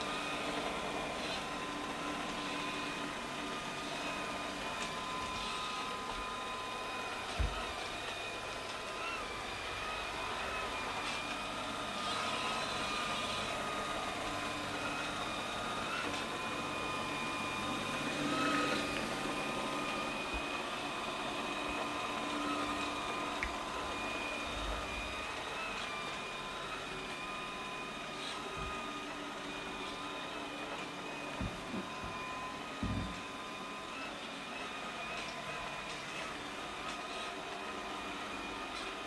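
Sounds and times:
robot vacuum whirring: 0.0s - 39.0s.

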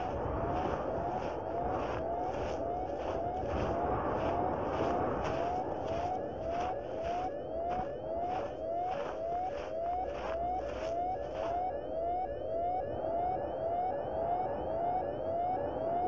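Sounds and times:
pulsing electronic rhythm: 0.0s - 12.8s.

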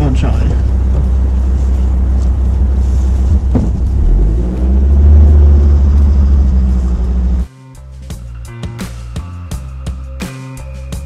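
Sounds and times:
vehicle engine and road rumble: 0.0s - 7.5s
knock: 3.5s - 3.8s.

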